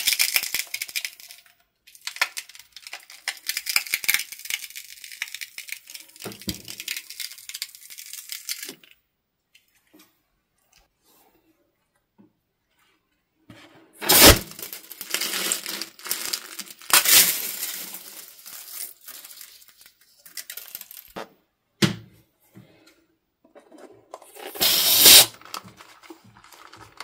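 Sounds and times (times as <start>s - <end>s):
balloon snapping open: 14.0s - 14.8s, 24.5s - 25.3s
sequins rustling onto plastic tray: 14.0s - 21.2s, 23.6s - 27.0s.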